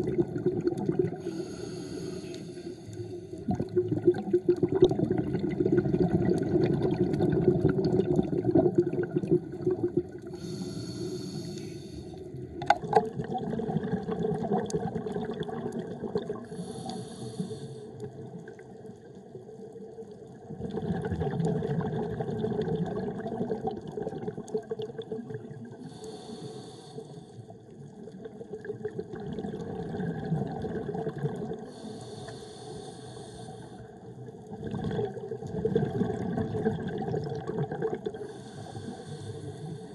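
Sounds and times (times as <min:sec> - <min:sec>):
bubbly gurgling exhalations: 0:00.0 - 0:01.4, 0:03.3 - 0:10.5, 0:12.3 - 0:16.6, 0:20.4 - 0:25.9, 0:28.0 - 0:31.8, 0:34.4 - 0:39.0
regulator inhalation hiss: 0:01.2 - 0:03.4, 0:10.3 - 0:12.2, 0:16.5 - 0:18.0, 0:25.8 - 0:27.4, 0:31.7 - 0:33.8, 0:38.2 - 0:39.9.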